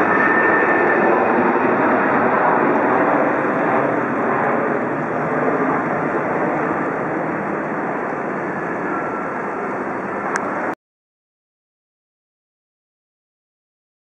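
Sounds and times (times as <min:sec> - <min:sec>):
jet engines roaring at takeoff: 0:00.0 - 0:10.8.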